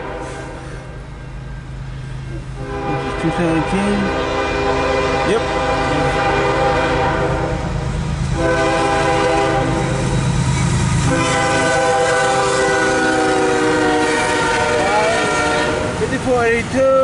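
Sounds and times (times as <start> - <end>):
locomotive air horn blasts: 0.0 - 1.0, 2.6 - 10.2, 11.0 - 16.0
locomotive rumble: 0.0 - 17.0.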